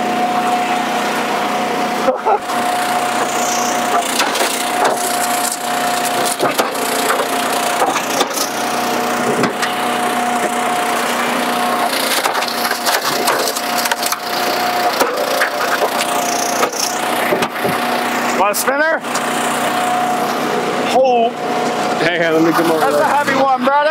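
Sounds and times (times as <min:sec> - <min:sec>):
log splitter whine: 0:00.0 - 0:23.9
wood cracking and splintering: 0:03.9 - 0:08.7, 0:11.8 - 0:17.8.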